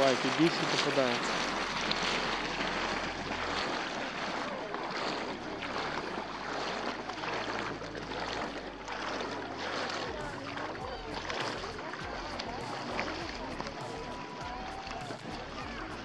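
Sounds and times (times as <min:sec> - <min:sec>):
distant voices: 0:00.0 - 0:16.0
water sloshing around legs: 0:00.0 - 0:16.0.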